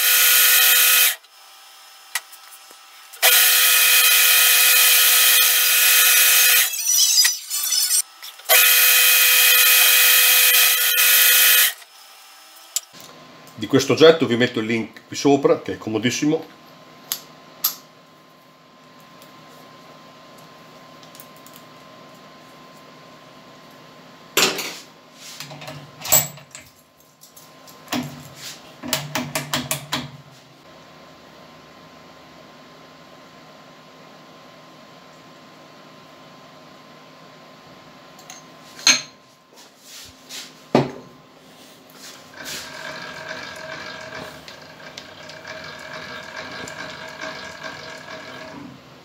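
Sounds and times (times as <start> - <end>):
small electric motor whining: 0.0 - 1.3, 3.1 - 12.9, 42.3 - 48.8.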